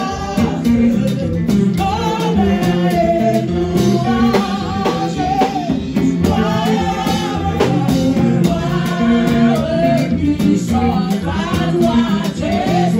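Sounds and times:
band playing: 0.0s - 12.9s
drum strokes: 0.0s - 12.9s
person singing: 0.0s - 12.9s.

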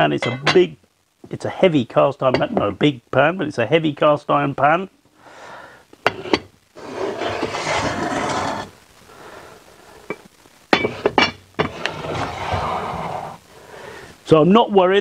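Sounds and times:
heavy iron pots clunking on masonry: 0.2s - 0.7s, 2.4s - 2.7s, 10.8s - 11.8s
pot grating scrape on stone: 6.1s - 8.7s, 10.8s - 13.4s.

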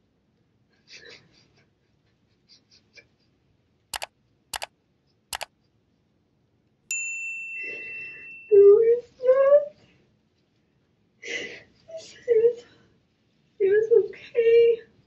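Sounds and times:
computer mouse double clicks: 4.0s - 4.7s.

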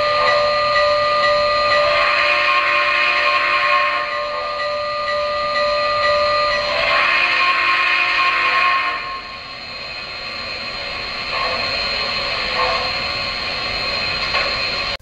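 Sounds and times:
faint high whine: 0.0s - 15.0s
model locomotive steam hissing: 1.7s - 4.4s, 6.6s - 15.0s.

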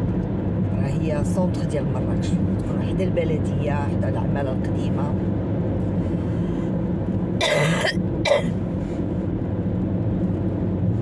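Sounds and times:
person coughing: 7.4s - 8.5s.

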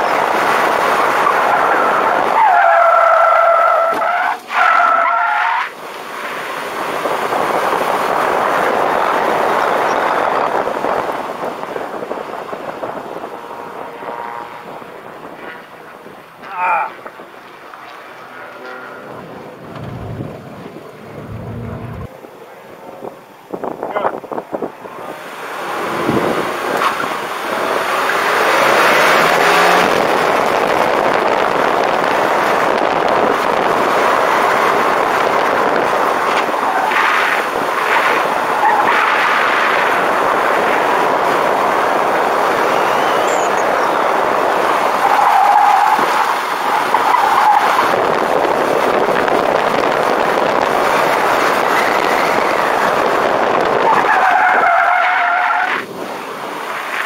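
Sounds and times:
tires squealing: 0.0s - 22.1s, 23.7s - 57.0s
road and wind noise: 0.0s - 57.0s
car engine revving: 6.6s - 23.6s, 24.6s - 45.2s.

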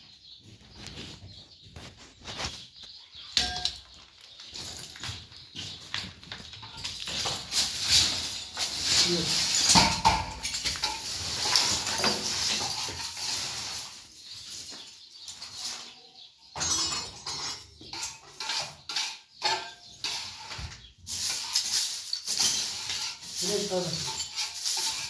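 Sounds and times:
plaster chunks clattering: 6.3s - 13.4s
scraper scraping floor: 6.9s - 16.0s, 20.0s - 25.0s.

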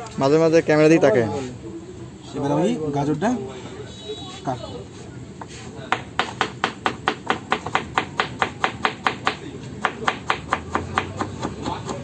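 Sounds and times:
knife chopping on wooden board: 5.9s - 12.0s.

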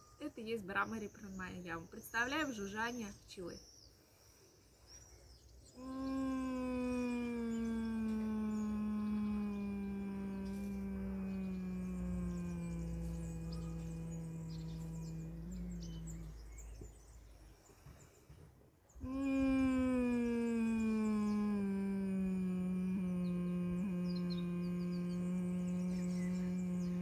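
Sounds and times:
person humming: 5.8s - 16.9s, 19.0s - 27.0s.

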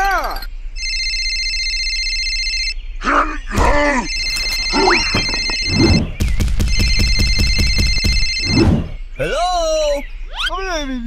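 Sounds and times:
telephone ringing: 0.3s - 2.8s, 4.0s - 6.0s, 6.7s - 8.6s
comic voice sounds: 3.0s - 6.1s
fast pulsing: 3.6s - 9.0s.

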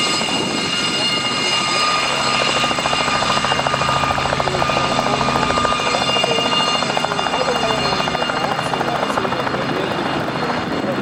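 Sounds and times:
helicopter turbine whine: 0.0s - 11.0s.

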